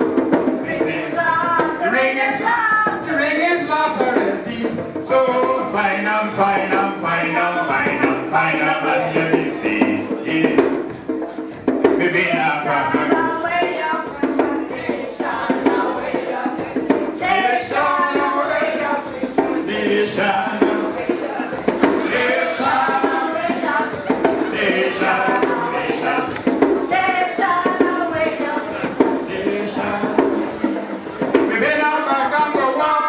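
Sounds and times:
group singing: 0.0 - 33.0
man singing into a microphone: 0.6 - 10.9, 11.9 - 14.1, 17.2 - 26.4, 27.8 - 30.6, 31.4 - 33.0.

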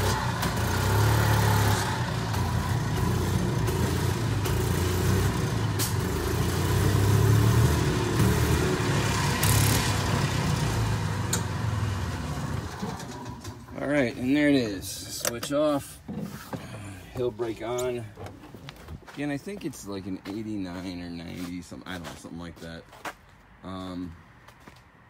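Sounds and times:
golf cart engine running: 0.0 - 14.6.

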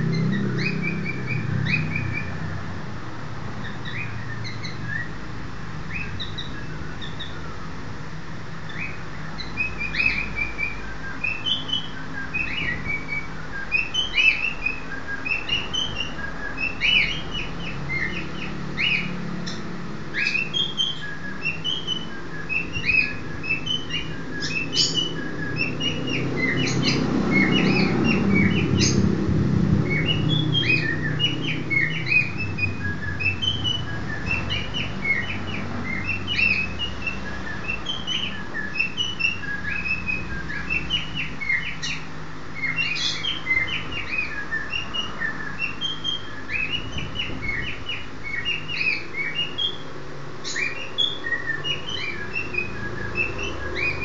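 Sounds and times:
cockatiels chirping: 0.0 - 2.6, 3.6 - 5.2, 5.8 - 7.6, 8.6 - 54.0.

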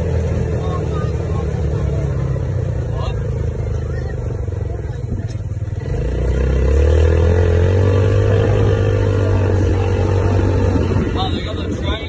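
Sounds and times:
buggy engine accelerating: 0.0 - 12.0.

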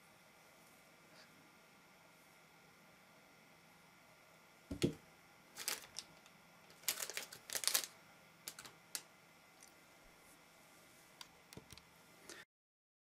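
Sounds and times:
plastic bag and envelope crinkling: 5.5 - 9.7.

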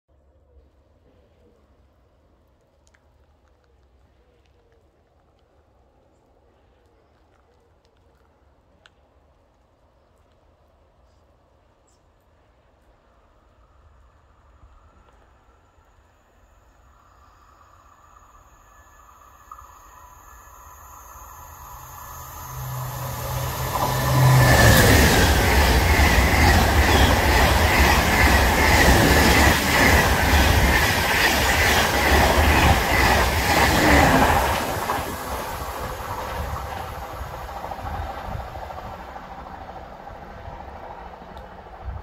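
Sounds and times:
high-speed train passing: 13.1 - 42.0.

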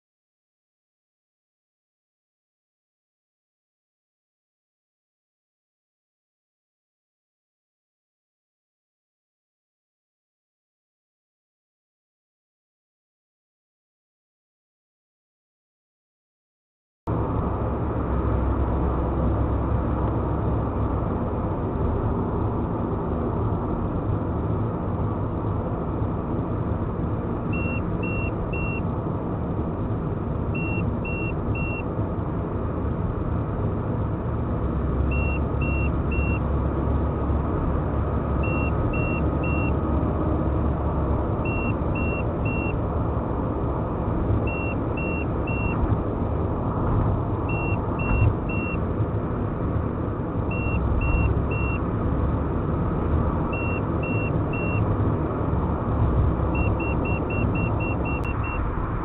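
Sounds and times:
car road and engine noise: 17.1 - 59.0.

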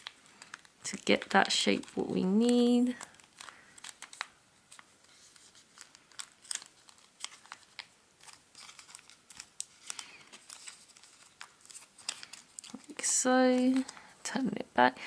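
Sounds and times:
paper crinkling: 0.0 - 14.4.

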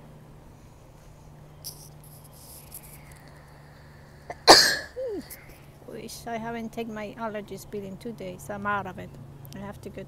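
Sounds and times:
steady low hum: 0.0 - 10.0
faint insect chirping: 1.4 - 5.8
person sneezing: 4.3 - 5.3.

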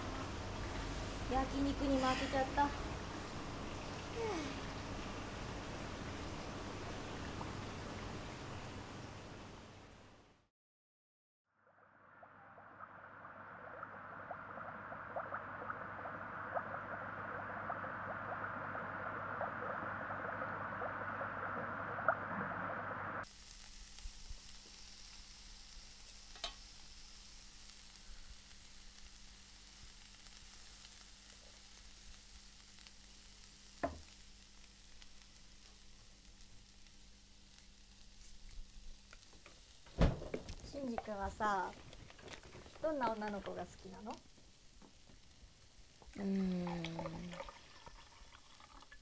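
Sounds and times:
meat sizzling on a hot plate: 4.1 - 4.6, 23.2 - 46.9.

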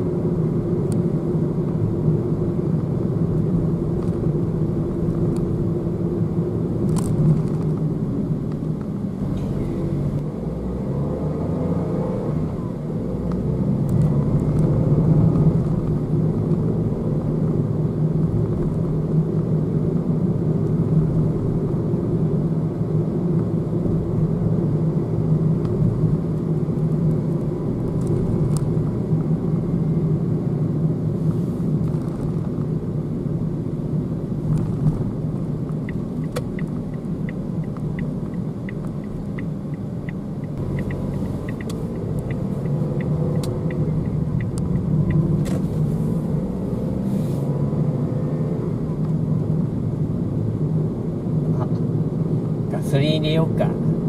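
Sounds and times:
car road and engine rumble: 0.0 - 54.0
light ticks: 35.7 - 45.6.

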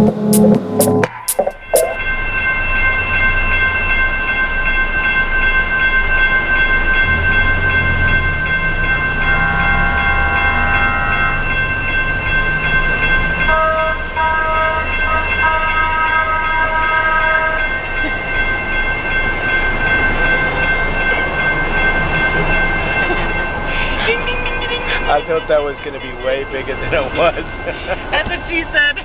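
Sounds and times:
horn blasts: 0.0 - 2.0, 9.2 - 11.6, 13.5 - 17.7
high ringing tones: 0.0 - 28.8.

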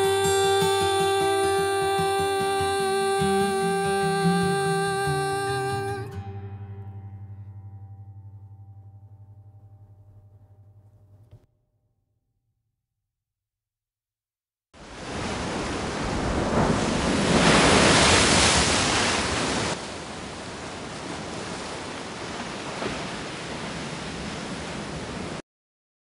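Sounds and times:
waves washing onto shore: 14.8 - 25.4.

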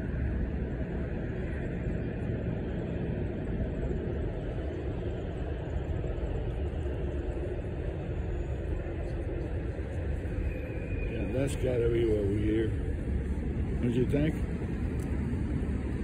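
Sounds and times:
low rumble of subway train: 0.0 - 16.0.

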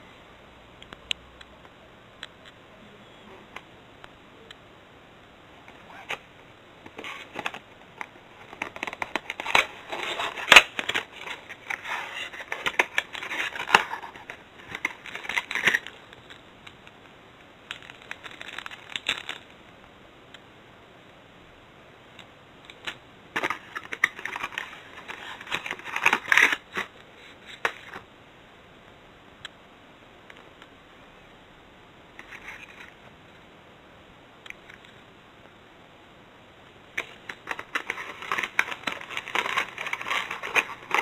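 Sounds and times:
plastic bag crinkling: 37.0 - 41.0.

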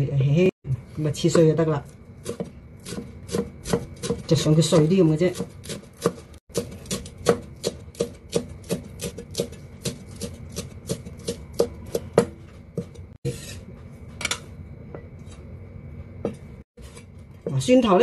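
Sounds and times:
cleaver chopping on wooden board: 2.2 - 4.2, 5.3 - 12.9.

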